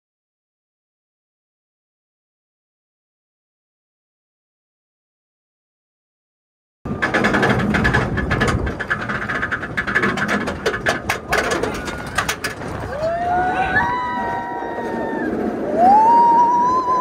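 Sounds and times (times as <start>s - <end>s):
lift chain clattering: 6.9s - 12.9s.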